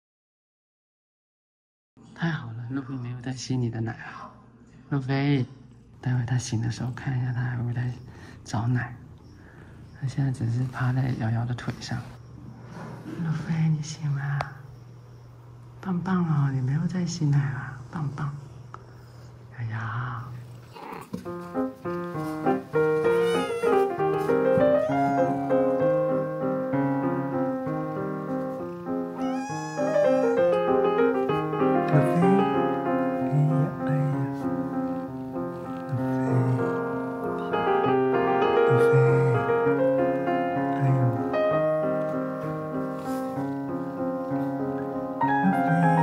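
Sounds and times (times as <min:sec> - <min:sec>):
cat meowing: 0:20.7 - 0:21.2, 0:22.9 - 0:24.3, 0:29.1 - 0:31.0
gentle piano music: 0:20.8 - 0:46.0.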